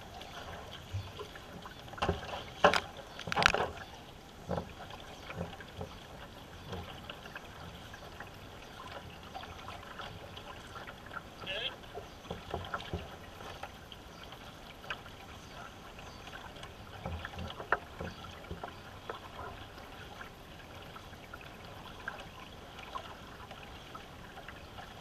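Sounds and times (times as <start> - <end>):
paddles splashing water: 0.0 - 25.0
water trickling along hull: 0.0 - 25.0
light clicks and knocks: 0.8 - 7.8.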